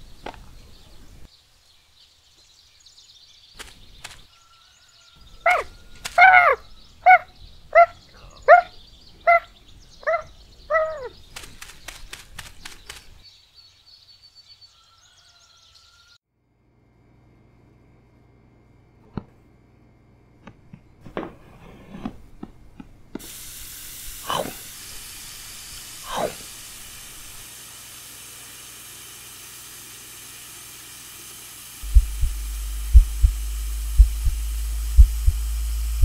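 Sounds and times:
faint birdsong: 0.0 - 16.2, 31.9 - 36.0
short loud animal calls: 5.4 - 8.7.

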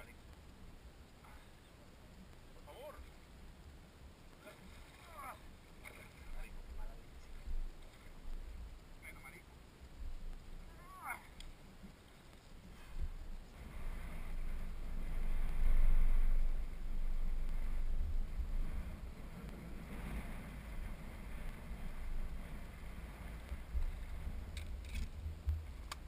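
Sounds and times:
wind buffeting microphone: 9.8 - 26.0.

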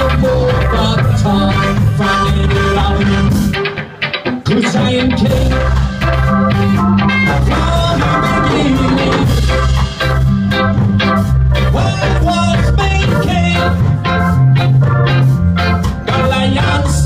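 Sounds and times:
ska band playing: 0.0 - 17.0
saxophone: 7.2 - 9.8.

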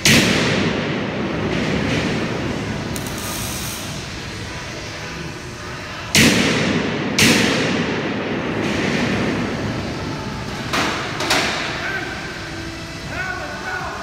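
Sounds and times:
loud bangs on steel: 6.1 - 9.3.

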